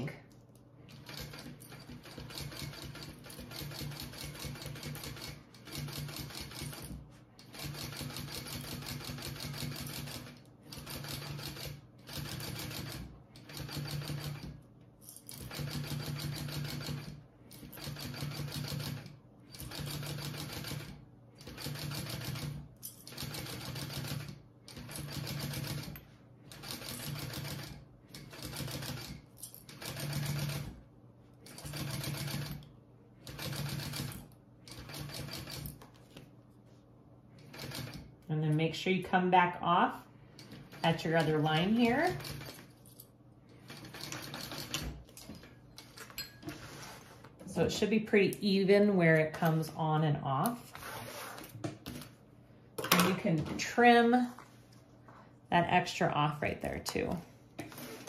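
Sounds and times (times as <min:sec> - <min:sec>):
sewing machine stitching: 0:00.9 - 0:14.6, 0:15.3 - 0:30.8, 0:31.5 - 0:32.6, 0:33.2 - 0:35.8, 0:37.4 - 0:38.1, 0:40.4 - 0:42.7, 0:43.6 - 0:45.4.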